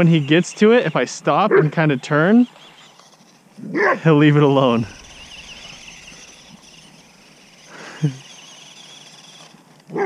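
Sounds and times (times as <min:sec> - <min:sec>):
electric motor whine: 0:02.0 - 0:10.0.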